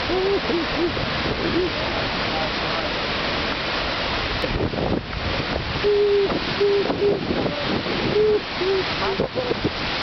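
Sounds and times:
river rapids: 0:00.0 - 0:10.0
wind rushing: 0:03.2 - 0:10.0.

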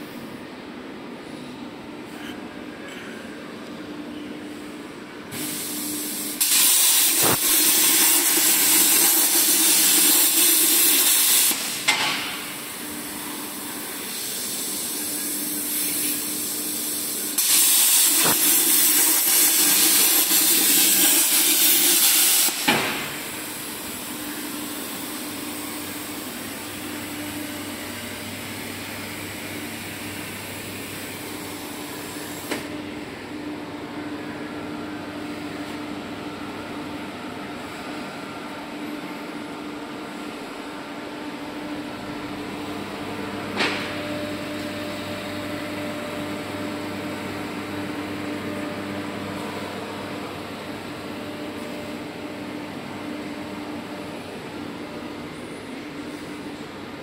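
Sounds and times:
plasma torch hissing: 0:05.3 - 0:11.9, 0:14.0 - 0:23.7.

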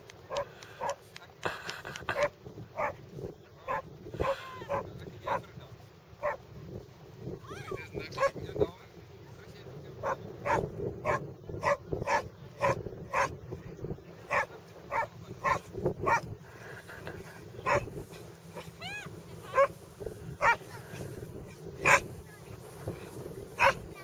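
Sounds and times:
dog barking sharply: 0:23.6 - 0:23.8.

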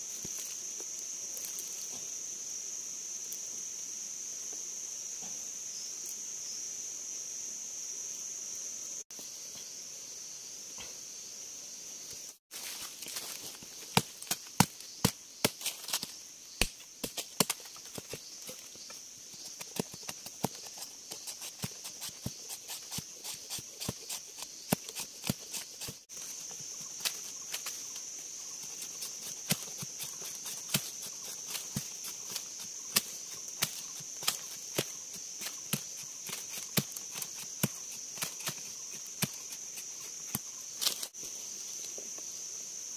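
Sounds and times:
machete chopping bamboo: 0:13.8 - 0:18.2, 0:19.5 - 0:26.0, 0:28.7 - 0:41.1.

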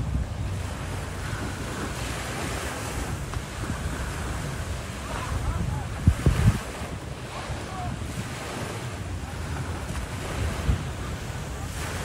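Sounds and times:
rushing open water: 0:00.0 - 0:12.0
wind buffeting microphone: 0:00.0 - 0:12.0.

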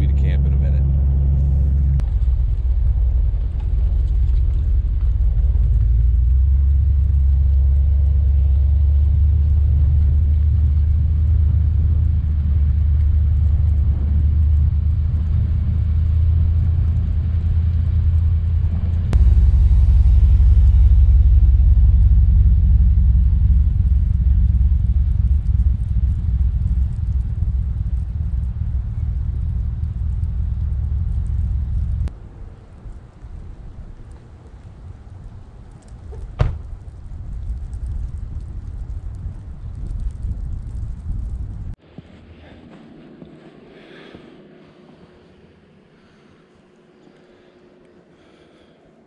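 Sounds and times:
truck driving through snow: 0:00.0 - 0:32.1.

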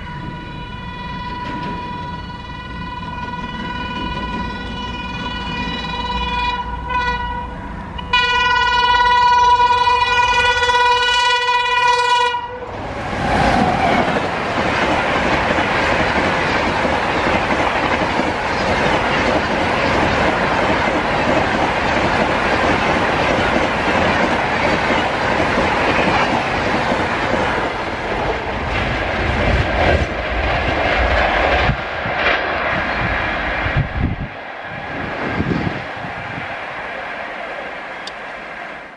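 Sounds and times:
locomotive horn: 0:00.0 - 0:12.7
train rushing past: 0:00.0 - 0:38.9.

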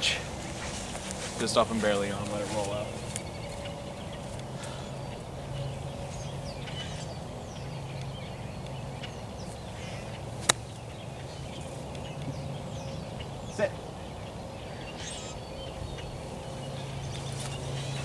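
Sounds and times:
birds chirping: 0:00.0 - 0:18.0
golf club striking ball: 0:10.4 - 0:10.8.

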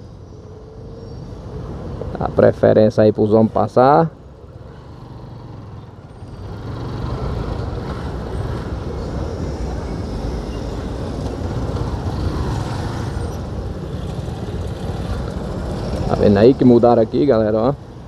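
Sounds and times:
traffic engines rumbling: 0:00.0 - 0:18.0.

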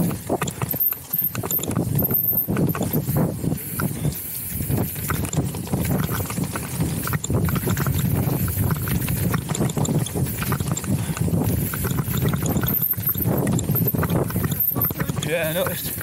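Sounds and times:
mountain bike rattling over rocks: 0:00.0 - 0:16.0.

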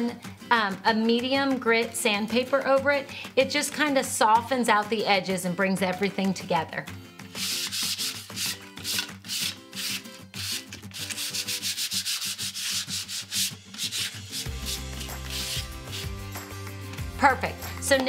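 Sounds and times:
sandpaper rubbing on wood: 0:07.4 - 0:16.2.

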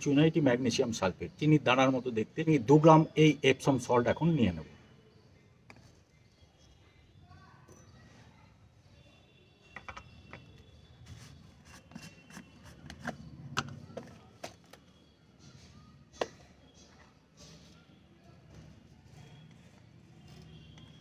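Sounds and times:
containers clicking and tapping: 0:09.8 - 0:10.6, 0:11.7 - 0:14.9.

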